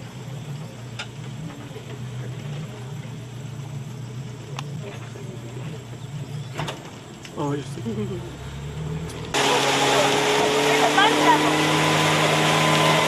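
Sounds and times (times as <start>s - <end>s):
boat engine idling: 0.0s - 13.0s
faint clicks: 4.4s - 5.6s.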